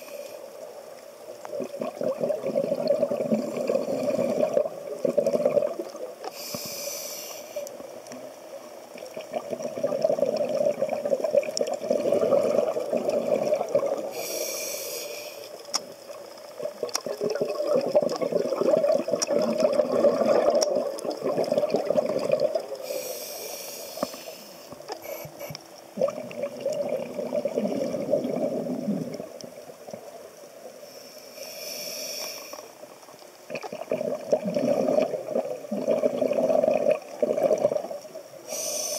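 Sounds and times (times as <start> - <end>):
hissing regulator inhalations: 6.3 - 7.8, 14.1 - 15.6, 22.8 - 25.6, 30.8 - 32.8, 38.5 - 38.9.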